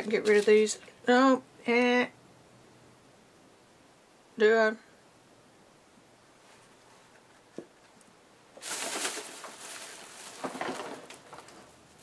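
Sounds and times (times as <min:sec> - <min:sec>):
paper rustling: 0:00.0 - 0:00.9, 0:08.6 - 0:11.8.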